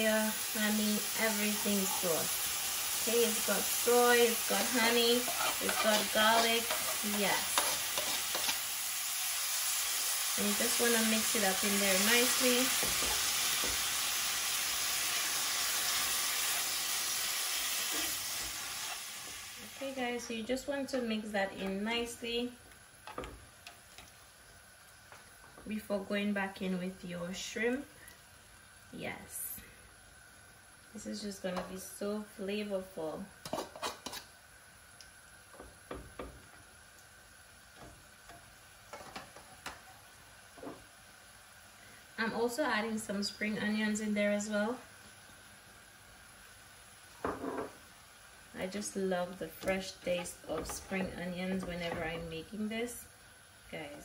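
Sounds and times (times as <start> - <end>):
sauce sizzling in a skillet: 0.0 - 54.0
tongs tapping cast-iron skillet: 4.2 - 8.7, 12.0 - 13.9, 35.5 - 36.6.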